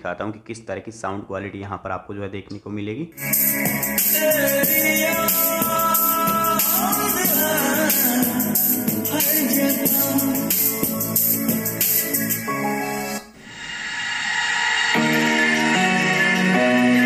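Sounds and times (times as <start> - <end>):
percussion: 3.2 - 12.4
person singing: 3.5 - 12.4, 13.8 - 17.0.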